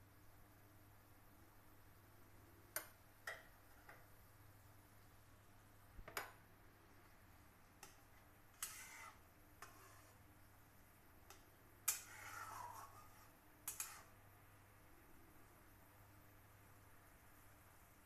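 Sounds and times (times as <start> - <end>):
metal spatula clinking and scraping: 8.6 - 10.2, 11.8 - 14.2.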